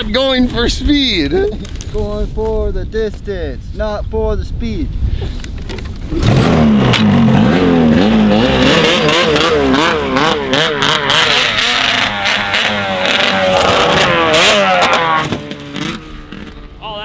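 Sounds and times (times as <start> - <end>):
snowmobile engine revving: 6.1 - 17.0.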